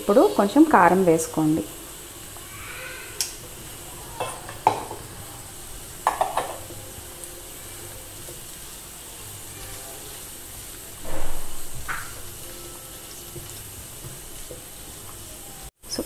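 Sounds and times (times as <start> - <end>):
low sizzle: 0.0 - 16.0.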